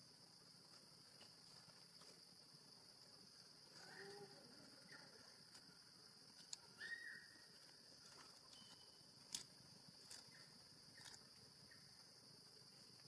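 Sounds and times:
forest insects droning: 0.0s - 13.0s
dry leaves crackling: 7.6s - 11.3s.

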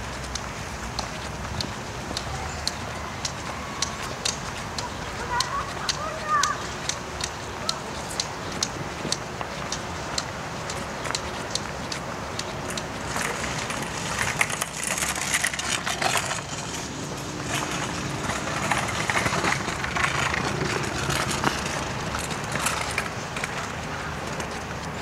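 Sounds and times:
distant traffic hum: 0.0s - 25.0s.

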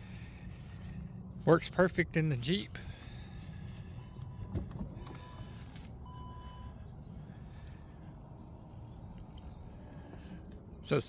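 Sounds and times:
short electronic beep: 5.1s - 6.8s.

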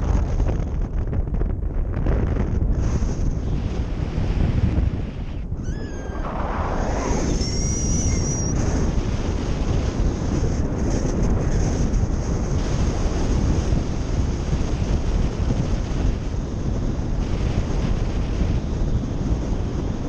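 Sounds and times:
wind buffeting microphone: 0.0s - 20.0s
faint high whistle: 5.6s - 8.8s.

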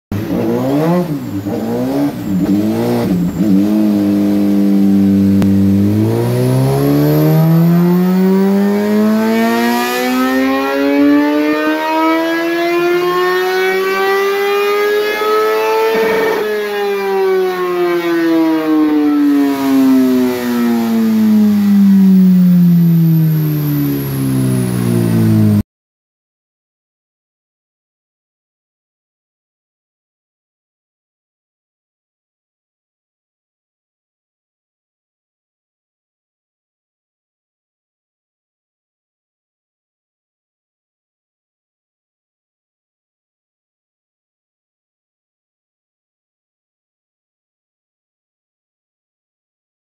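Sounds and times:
motorcycle engine revving on dyno: 0.1s - 25.6s.

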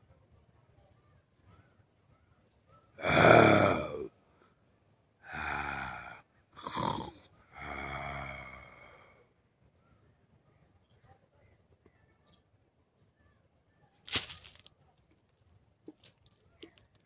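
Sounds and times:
hoarse rasping vocal calls: 3.0s - 4.1s, 5.3s - 9.1s.

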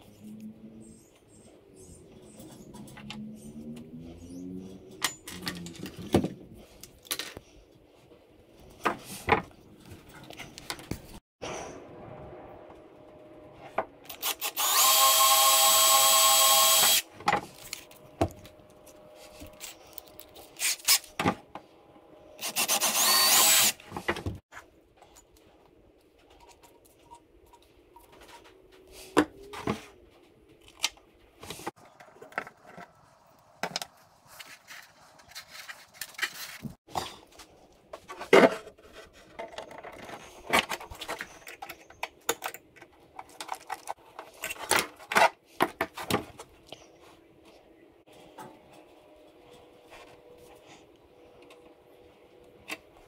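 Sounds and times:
cordless drill whining: 14.2s - 17.0s, 22.4s - 23.8s.

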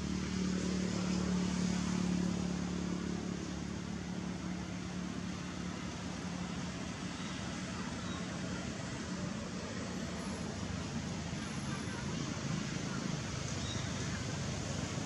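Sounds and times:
engine humming: 0.0s - 15.0s.

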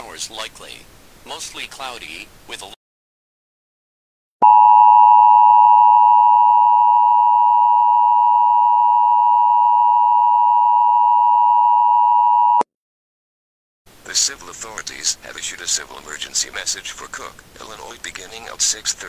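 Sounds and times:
electronic alarm tone: 4.4s - 12.6s.

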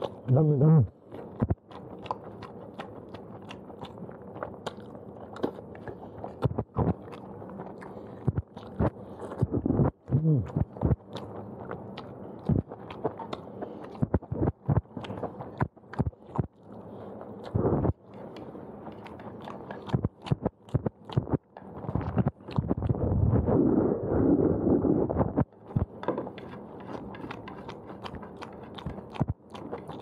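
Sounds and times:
man chewing noodles: 0.0s - 23.1s, 25.3s - 30.0s
man humming: 0.3s - 0.9s, 9.5s - 10.7s.

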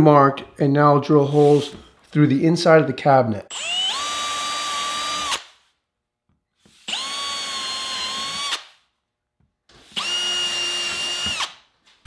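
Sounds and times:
cordless drill whining: 3.5s - 5.6s, 6.6s - 8.8s, 9.8s - 11.6s.

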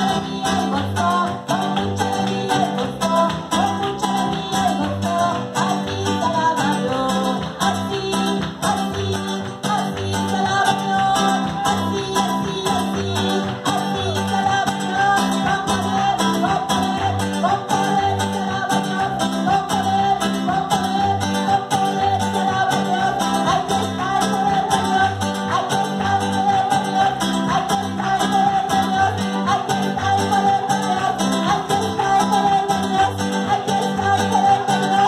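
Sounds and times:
latin dance music: 0.0s - 35.0s
person singing: 0.0s - 35.0s
plucked guitar: 0.0s - 35.0s.

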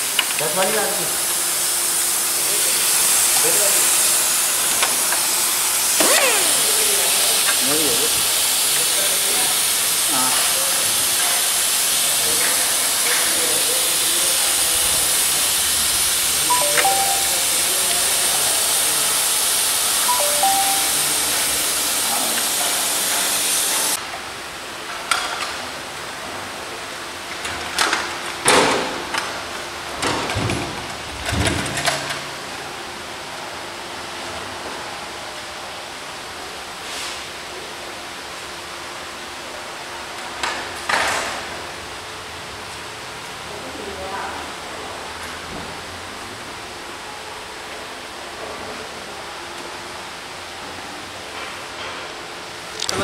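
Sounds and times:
loud steady hiss: 0.0s - 24.0s.

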